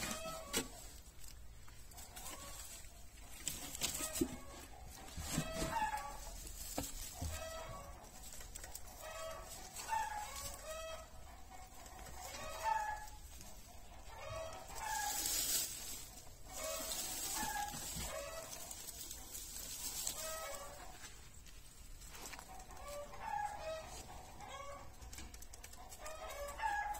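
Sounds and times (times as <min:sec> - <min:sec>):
hens clucking: 0:00.0 - 0:26.9.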